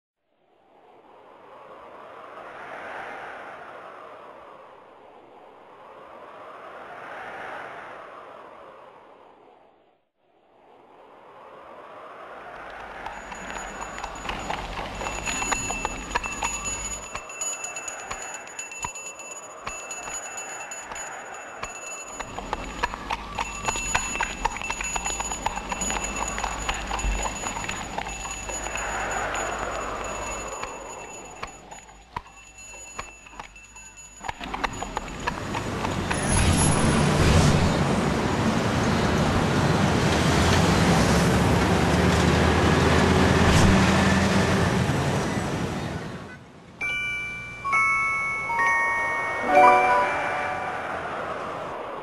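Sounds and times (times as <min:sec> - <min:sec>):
road traffic rumble: 0:11.8 - 0:32.1, 0:33.5 - 0:48.2
horse hooves clip-clopping on street: 0:12.7 - 0:36.9
mallet percussion notes: 0:46.8 - 0:51.0.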